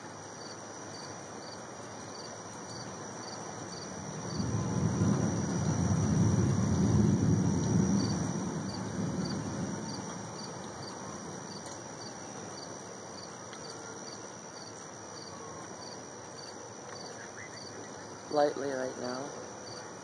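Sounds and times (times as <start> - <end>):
cricket chirping: 0.0 - 20.0
low rumble of thunder: 3.6 - 11.6.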